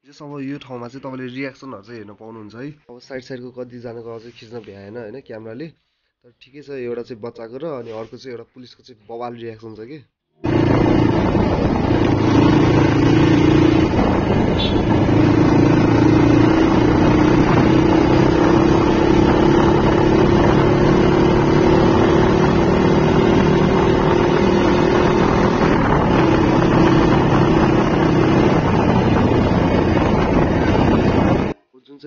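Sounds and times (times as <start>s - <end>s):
motorcycle engine cruising: 10.4s - 31.6s
wind rushing over microphone: 10.4s - 31.6s.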